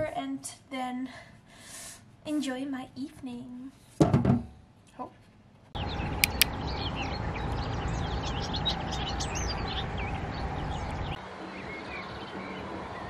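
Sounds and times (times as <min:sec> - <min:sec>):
birds chirping and singing: 0:05.8 - 0:13.0
wind rumble on microphone: 0:05.8 - 0:13.0
sharp clicks: 0:06.2 - 0:06.5.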